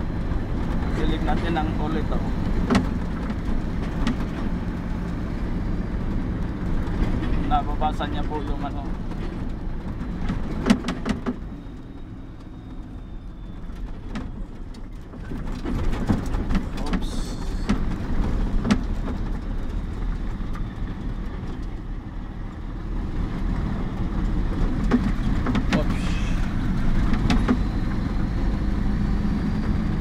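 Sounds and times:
diesel engine and road noise: 0.0 - 30.0
knocks and rattles: 8.7 - 11.5, 13.7 - 21.8, 23.2 - 28.3.

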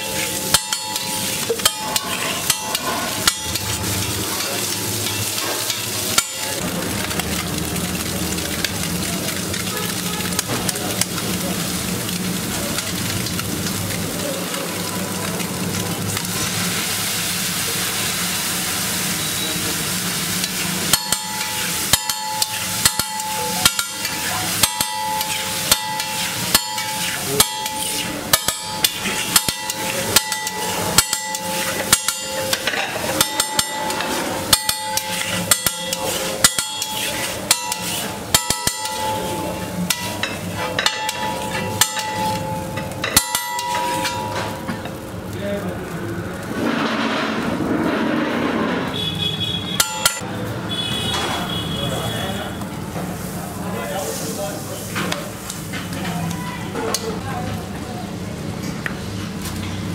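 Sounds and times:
metal spatula clanking on griddle: 0.0 - 6.6, 20.4 - 45.1, 49.8 - 50.2
egg sizzling on griddle: 0.0 - 51.6.

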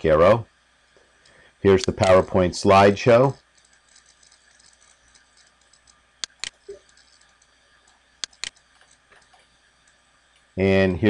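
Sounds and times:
faint steady hiss: 0.0 - 11.0
computer mouse clicks: 3.4 - 10.5.

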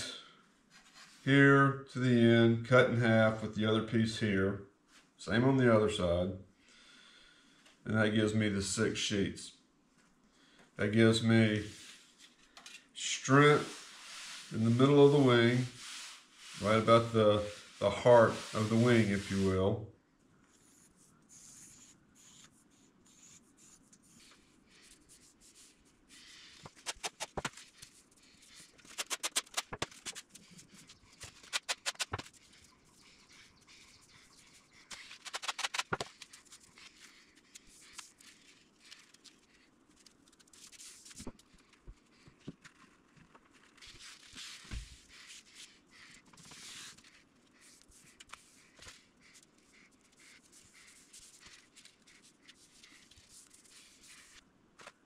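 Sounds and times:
rapid clicking: 31.3 - 32.4.

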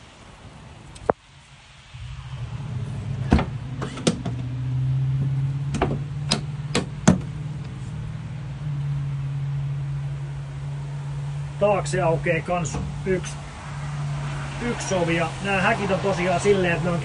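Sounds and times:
van door latch clicks: 5.7 - 7.3.

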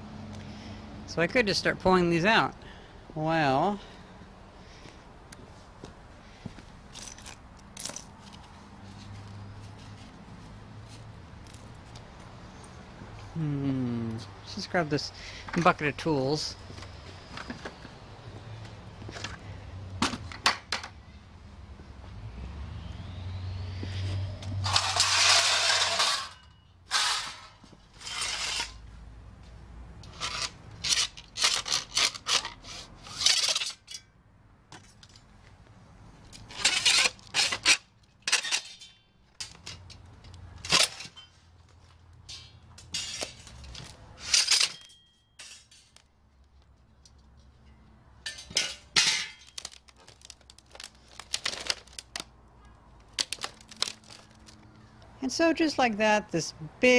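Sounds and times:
metal tools clinking and scraping: 6.9 - 10.2, 24.6 - 28.8, 30.0 - 34.2, 36.3 - 41.6, 42.2 - 46.1, 47.0 - 52.0
metal rattle: 24.6 - 28.8.

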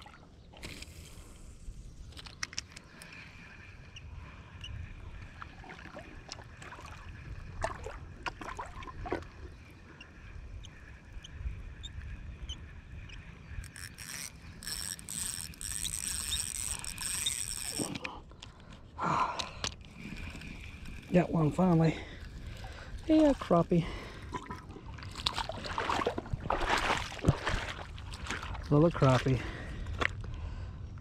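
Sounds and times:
fishing reel whirring: 11.8 - 18.4, 19.6 - 23.8
fishing reel clicks: 12.5 - 18.5.

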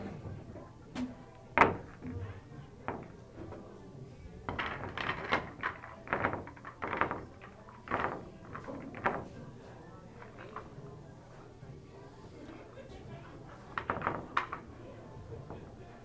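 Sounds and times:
pool balls clacking: 0.0 - 11.0, 13.0 - 16.0.

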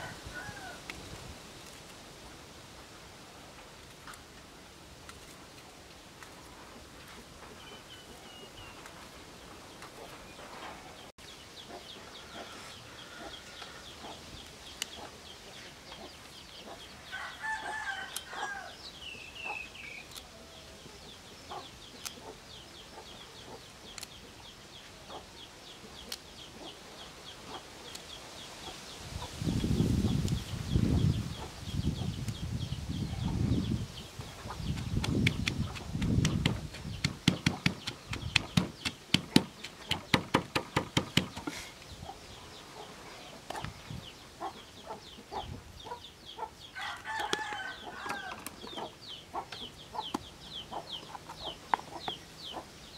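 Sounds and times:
rooster crowing: 0.0 - 0.8, 17.1 - 18.8, 46.8 - 48.5
rapid high chirping: 34.4 - 41.5.

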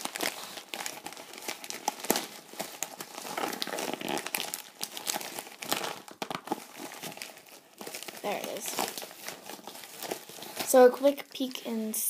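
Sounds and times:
plastic bag snapping: 0.0 - 10.7
plastic bag crinkling: 0.0 - 11.5.

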